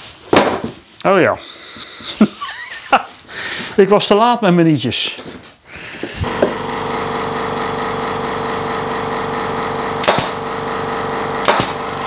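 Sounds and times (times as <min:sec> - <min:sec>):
air compressor motor drone: 0:06.0 - 0:12.0
brad nailer firing: 0:06.2 - 0:12.0.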